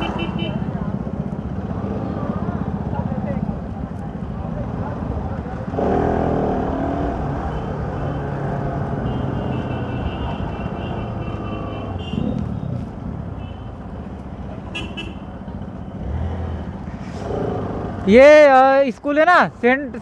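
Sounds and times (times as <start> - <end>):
vehicle horn: 0.0 - 0.6, 9.0 - 12.4, 14.7 - 15.2.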